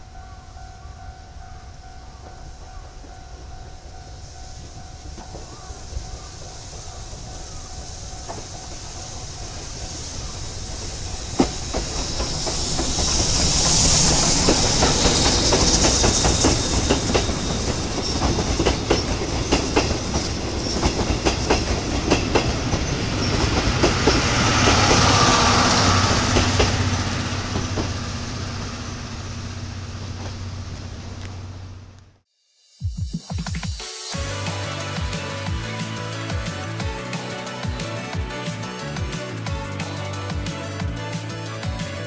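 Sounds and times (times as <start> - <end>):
wheels clacking over rail joints: 1.4 - 32.0
train rushing hiss: 2.9 - 31.9, 32.6 - 42.0.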